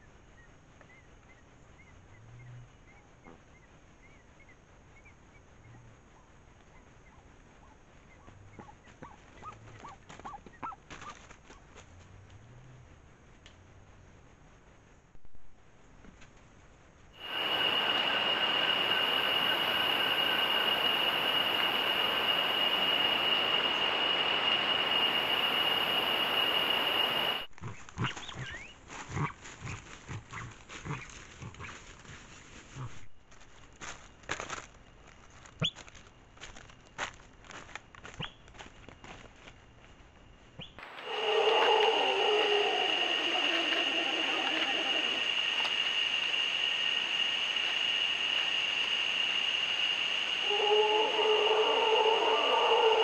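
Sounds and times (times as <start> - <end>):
loud steady hiss: 16.6 - 27.5, 40.8 - 53.0
high steady whine: 17.2 - 27.5, 40.8 - 53.0
faint high chirping: 17.2 - 28.8, 40.6 - 53.0
rustling in dry leaf litter: 27.6 - 39.5
bird calls: 40.6 - 49.3.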